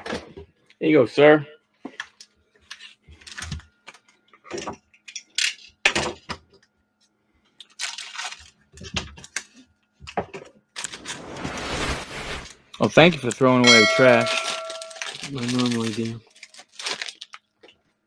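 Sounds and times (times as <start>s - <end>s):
plastic wrappers crinkling: 7.6s - 9.6s, 14.1s - 17.9s.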